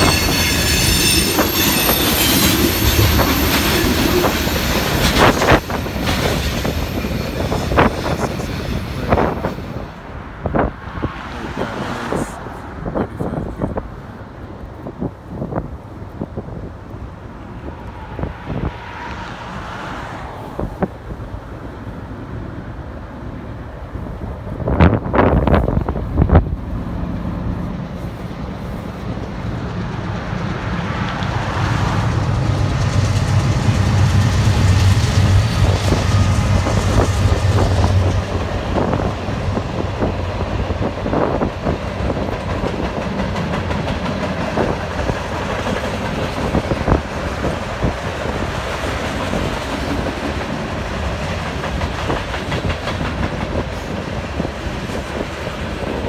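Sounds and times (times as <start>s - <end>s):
train wheels clicking: 0.0s - 9.8s, 28.9s - 56.0s
freight cars rumbling: 0.0s - 56.0s.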